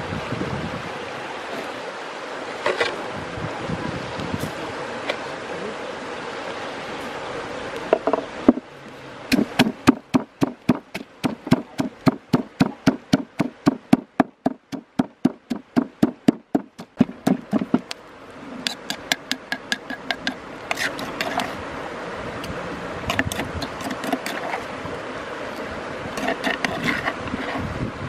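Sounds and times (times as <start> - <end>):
outdoor noise: 0.0 - 28.0
wooden pestle pounding in mortar: 9.3 - 17.9.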